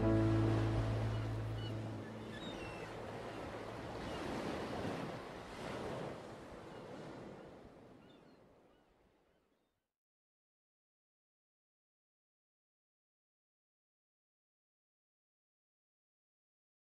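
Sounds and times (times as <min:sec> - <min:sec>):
sea waves washing: 0:00.0 - 0:07.4
wind: 0:00.0 - 0:09.9.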